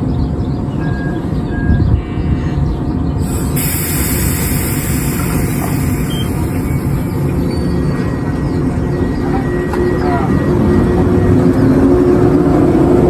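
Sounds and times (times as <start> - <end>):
electric train rumbling: 0.0 - 13.0
high-pitched hiss: 3.2 - 7.5
short high beeps: 5.2 - 8.0.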